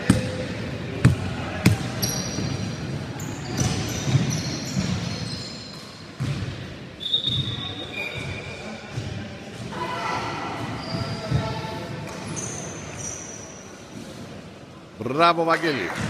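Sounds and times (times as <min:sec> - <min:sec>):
murmur of hall: 0:00.0 - 0:16.0
sneakers squeaking on court: 0:01.0 - 0:09.7, 0:10.6 - 0:13.7
basketball bouncing on wooden floor: 0:06.2 - 0:06.5.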